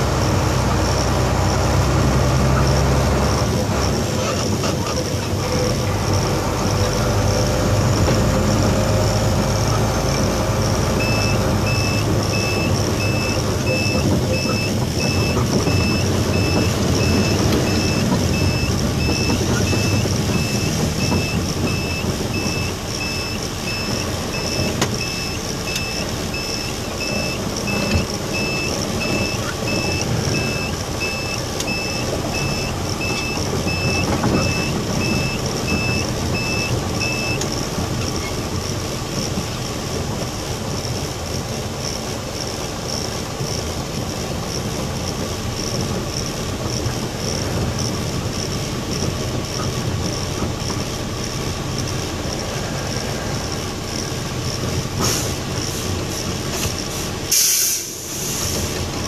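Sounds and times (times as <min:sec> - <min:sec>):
diesel truck engine: 0:00.0 - 0:59.0
road noise: 0:00.0 - 0:59.0
electronic beeping: 0:11.0 - 0:37.5.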